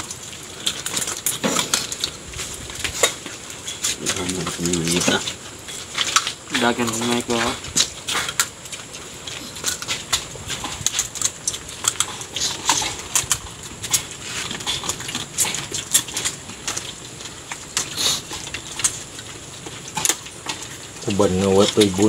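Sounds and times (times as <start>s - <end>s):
crab shells cracking by hand: 0.0s - 22.0s.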